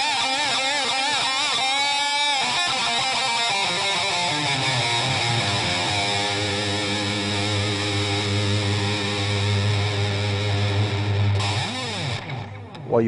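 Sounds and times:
distorted electric guitar chord: 0.0s - 12.8s.

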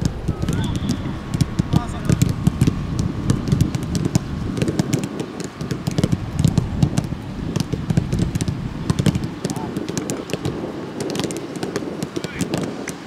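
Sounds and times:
rough low rumble: 0.0s - 9.6s
rapid irregular clicks and knocks: 0.0s - 13.0s.

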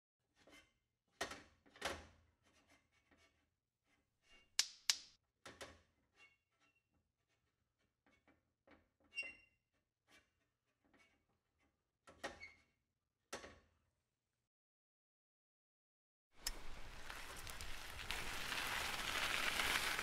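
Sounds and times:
paper rustling: 16.5s - 20.0s.

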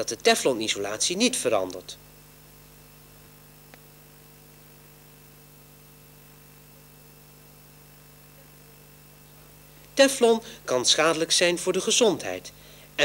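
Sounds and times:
electrical hum with hiss: 0.0s - 13.0s
small click: 3.6s - 3.9s.

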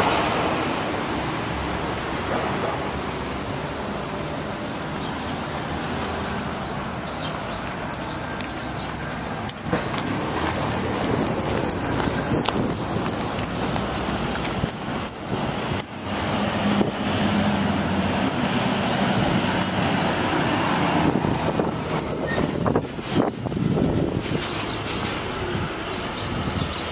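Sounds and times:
road noise: 0.0s - 26.9s
trucks driving past: 0.0s - 26.9s.

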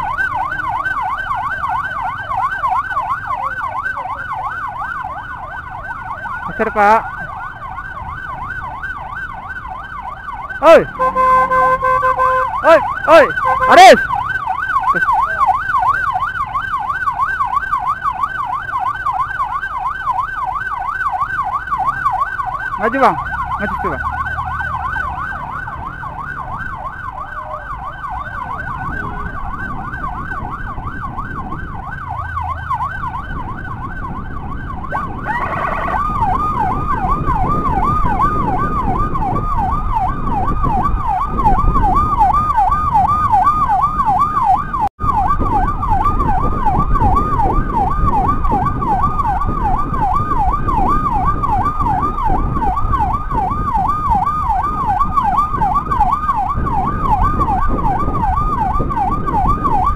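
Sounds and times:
electronic siren yelping: 0.0s - 59.9s
road noise: 0.0s - 59.9s.

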